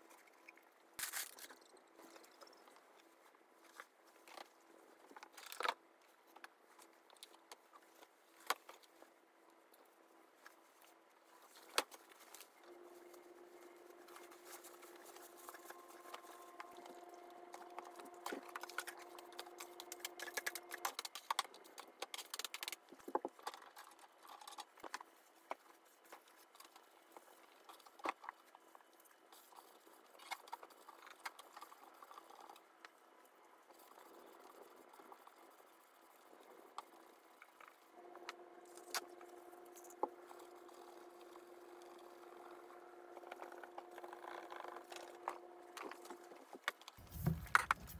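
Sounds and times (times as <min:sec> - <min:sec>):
faint steady hum: 0:00.0 - 0:47.9
hands scraping plastic cage floor: 0:47.0 - 0:47.9.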